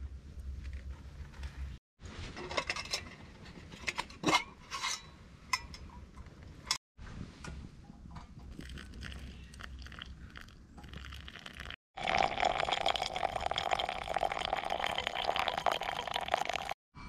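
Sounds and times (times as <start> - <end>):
hot water pouring into coffee filter: 8.6 - 16.8.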